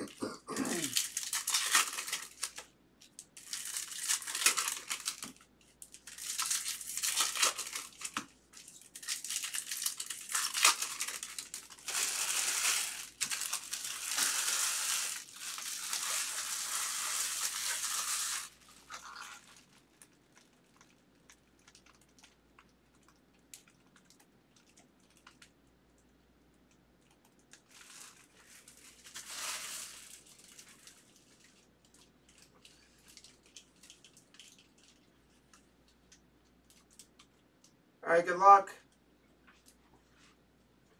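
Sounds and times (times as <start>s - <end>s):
wrappers tearing and crinkling: 0.6s - 2.7s, 3.3s - 22.4s, 27.5s - 35.1s.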